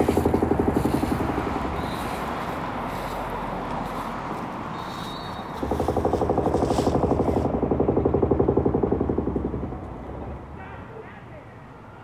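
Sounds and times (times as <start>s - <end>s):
demolition hammer pounding concrete: 0.0s - 1.8s, 5.6s - 10.4s.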